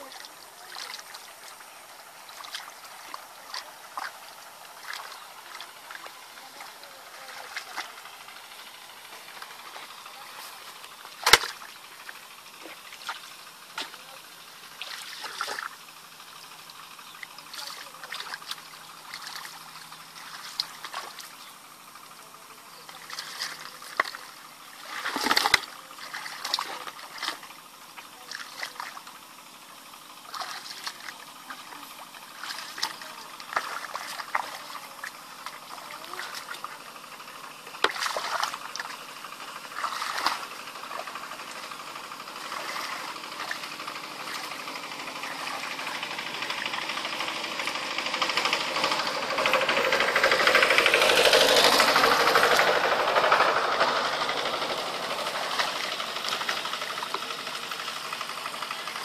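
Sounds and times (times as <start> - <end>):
muddy water splashing: 0.0 - 59.0
broad rushing noise: 37.0 - 59.0.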